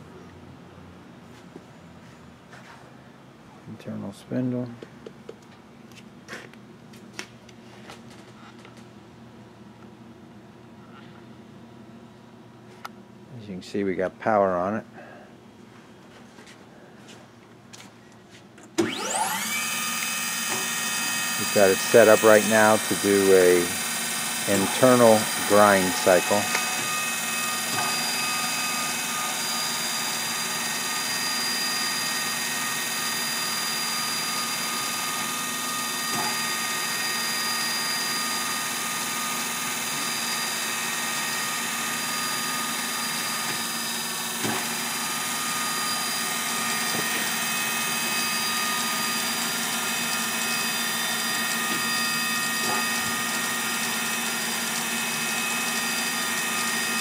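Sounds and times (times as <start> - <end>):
grinder machine whine: 18.6 - 57.0.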